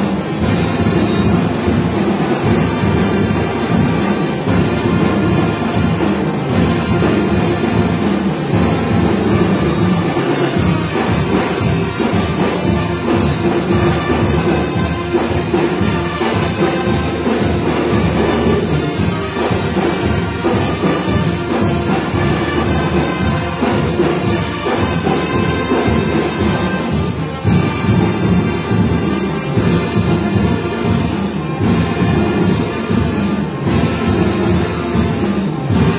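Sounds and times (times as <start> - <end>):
marching band playing: 0.0 - 35.9
steady drum beat: 0.0 - 35.9.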